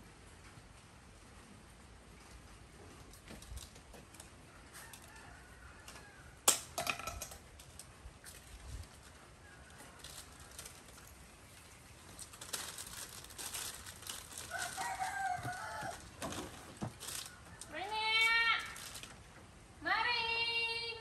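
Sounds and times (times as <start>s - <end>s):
monkeys clambering on wicker rack: 3.0s - 19.3s
distant rooster crowing: 4.4s - 6.4s, 14.4s - 18.0s.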